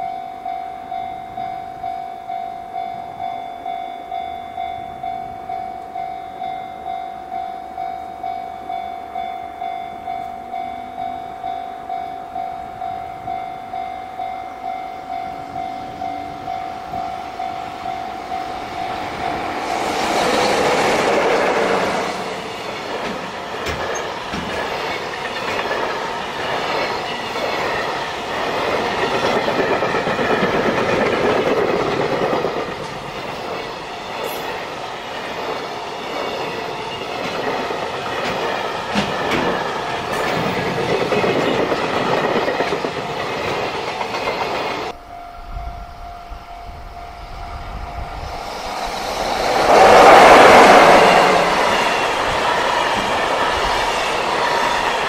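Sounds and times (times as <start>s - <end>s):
electric locomotive passing: 0.0s - 55.0s
train wagons clattering over rail joints: 20.0s - 44.9s.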